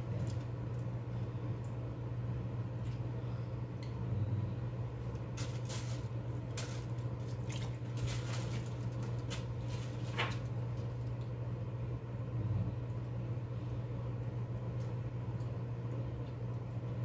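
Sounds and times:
steady low hum: 0:00.0 - 0:17.0
plastic bag rustling: 0:05.3 - 0:11.1.

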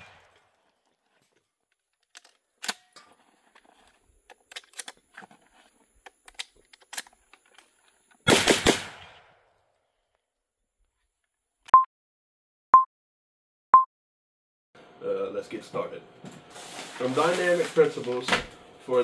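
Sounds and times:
gunshots with echo: 0:08.3 - 0:09.4.

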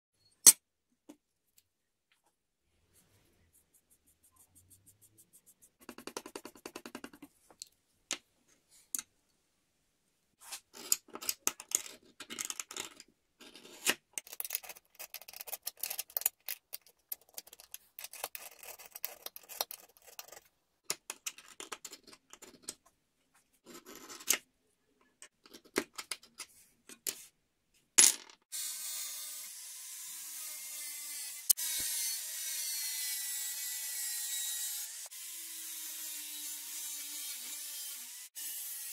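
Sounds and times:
marker scribbling on metal: 0:03.0 - 0:07.0
angle grinder cutting steel: 0:28.6 - 0:38.9.

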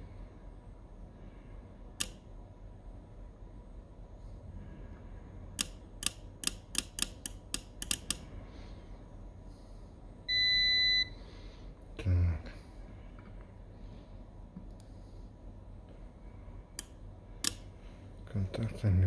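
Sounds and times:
multimeter beep: 0:10.3 - 0:11.2.

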